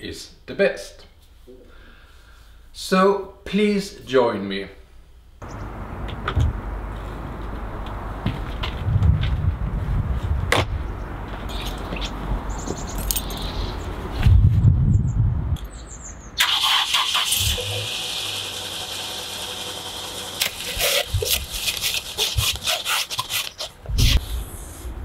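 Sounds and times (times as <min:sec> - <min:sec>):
car engine starting and running: 0:05.4 - 0:08.8, 0:16.4 - 0:22.2
snow brush sweeping snow: 0:20.6 - 0:24.3.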